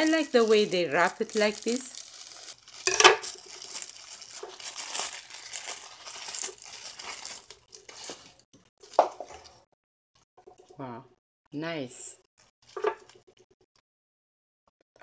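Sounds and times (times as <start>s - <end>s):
plastic wrap crinkling and tearing: 0.0s - 9.0s.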